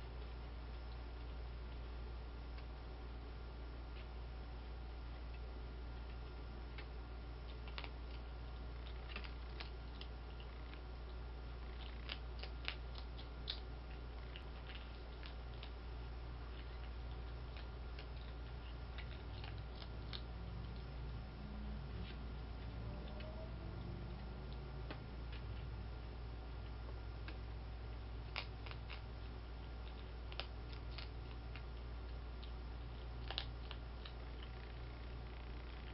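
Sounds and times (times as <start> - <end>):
steady low hum: 0.0 - 35.9
animal crunching dry food: 6.0 - 21.0, 26.4 - 35.9.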